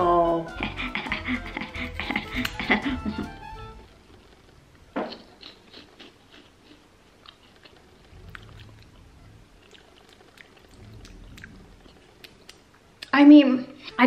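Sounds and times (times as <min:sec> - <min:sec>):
person chewing crunchy chip: 0:05.0 - 0:09.0, 0:09.6 - 0:12.7.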